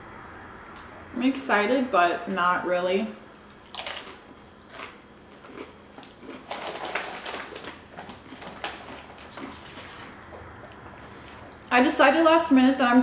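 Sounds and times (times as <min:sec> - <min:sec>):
tortilla chips crunching: 0:03.4 - 0:10.1.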